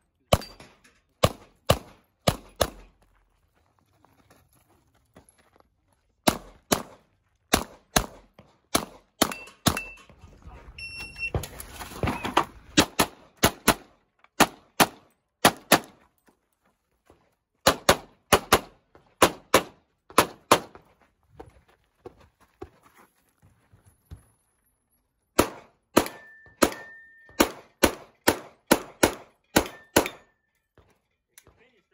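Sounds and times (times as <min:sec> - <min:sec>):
bullets ringing on steel targets: 0:00.2 - 0:01.5, 0:09.2 - 0:10.2, 0:25.5 - 0:31.6
rapid pistol shots: 0:01.2 - 0:02.8, 0:06.3 - 0:09.4, 0:12.8 - 0:15.9, 0:17.7 - 0:20.7, 0:25.4 - 0:30.2.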